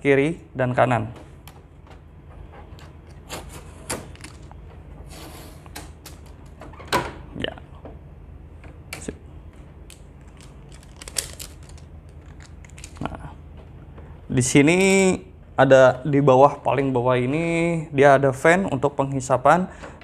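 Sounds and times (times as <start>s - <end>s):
tape being peeled: 9.9s - 13.2s.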